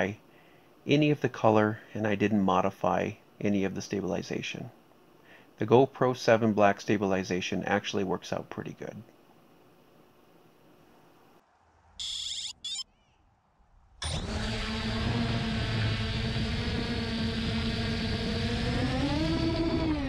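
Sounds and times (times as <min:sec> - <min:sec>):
drone propellers whining: 0:12.0 - 0:12.8, 0:14.0 - 0:20.0
short electronic beeps: 0:12.0 - 0:12.8.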